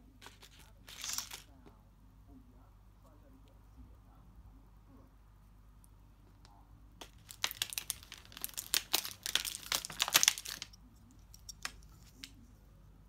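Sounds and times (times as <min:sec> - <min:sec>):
plastic packet crinkling: 0:00.2 - 0:01.5, 0:07.0 - 0:10.8.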